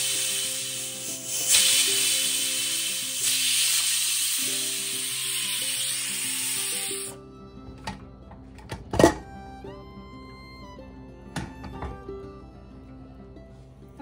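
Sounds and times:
pressure cooker steam hissing: 0.0 - 7.2
background music: 0.0 - 14.0.

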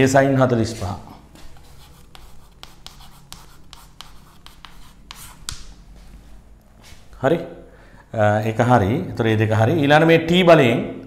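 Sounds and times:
chalk scratching on blackboard: 1.4 - 5.7
chalk tapping on blackboard: 1.4 - 5.8.

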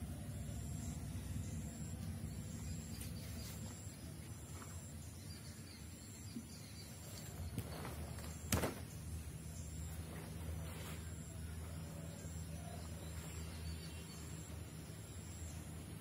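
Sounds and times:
low outdoor hum: 0.0 - 16.0
body slap-thud on concrete: 8.5 - 8.8.

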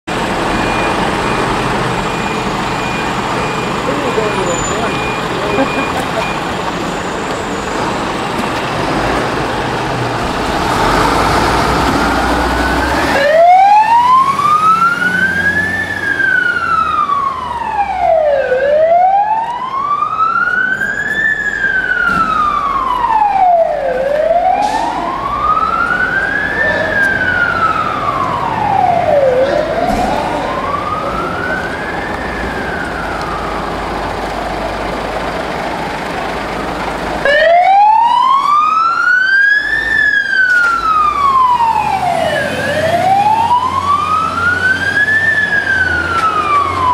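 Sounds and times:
diesel engine pulling out: 0.1 - 46.9
siren wailing: 12.2 - 34.0, 37.2 - 46.9.

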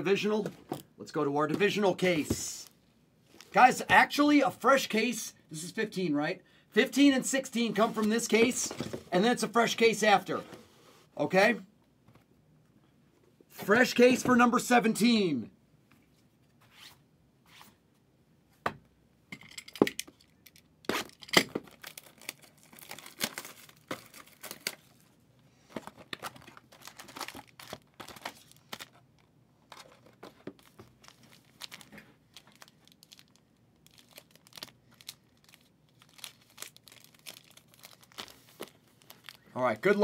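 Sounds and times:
shrink-wrap plastic tearing and crinkling: 20.9 - 25.0, 26.0 - 30.0, 30.6 - 40.0.

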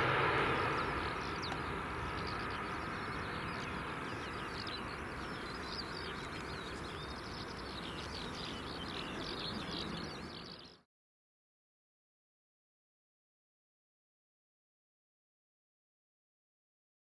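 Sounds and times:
distant jet engine rumble: 0.0 - 10.6
small birds chirping: 0.0 - 10.9.

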